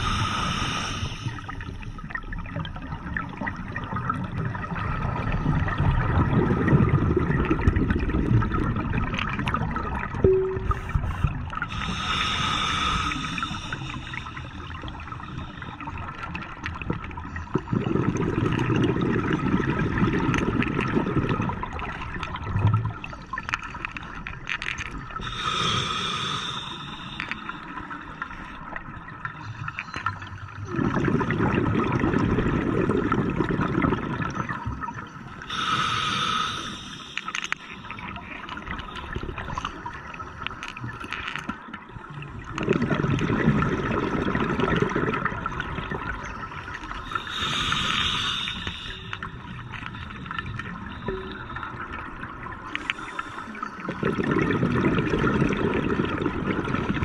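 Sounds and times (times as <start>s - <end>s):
regulator hissing inhalations: 0.0s - 1.5s, 11.7s - 14.7s, 25.2s - 27.7s, 35.5s - 37.8s, 47.0s - 50.1s
exhaled bubbles rushing: 1.5s - 11.7s, 16.7s - 23.1s, 30.7s - 35.1s, 42.2s - 47.9s, 53.8s - 57.0s.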